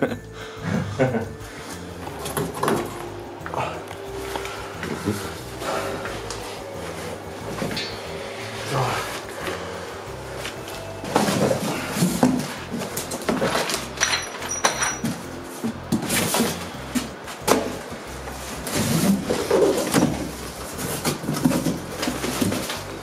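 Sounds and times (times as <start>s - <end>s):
cardboard boxes rubbing together: 5.3s - 7.7s, 18.3s - 23.0s.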